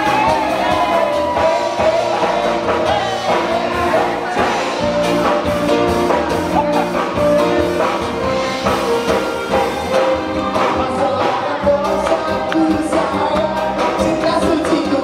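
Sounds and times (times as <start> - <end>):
amplified band backing music: 0.0 - 15.0.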